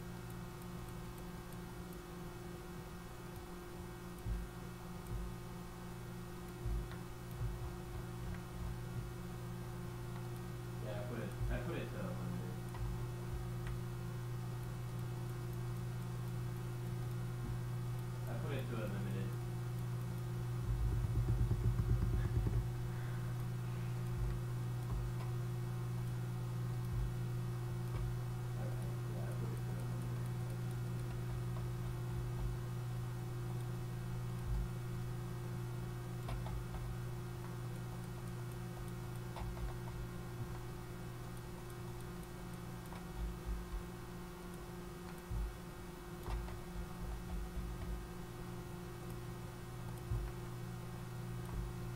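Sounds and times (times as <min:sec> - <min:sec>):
low electrical hum: 0:00.0 - 0:51.9
low fluttering rumble: 0:20.6 - 0:22.9
faint mouse clicks: 0:36.2 - 0:48.0.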